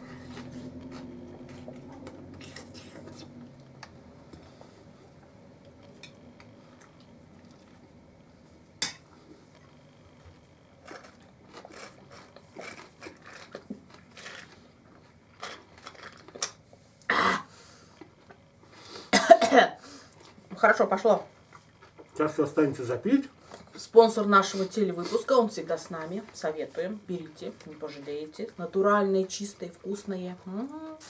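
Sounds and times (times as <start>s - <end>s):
soft chewing: 0.0s - 17.0s, 20.1s - 20.5s, 21.4s - 22.2s.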